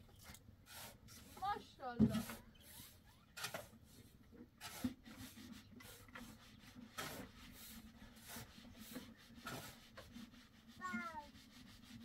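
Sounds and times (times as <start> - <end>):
faint rustling and scraping: 0.0 - 12.0.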